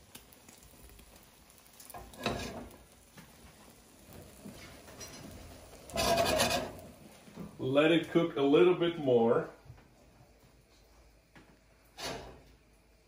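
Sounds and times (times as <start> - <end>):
faint sizzle of omelet: 0.0 - 13.0
paper towel rubbing frying pan: 5.8 - 7.0.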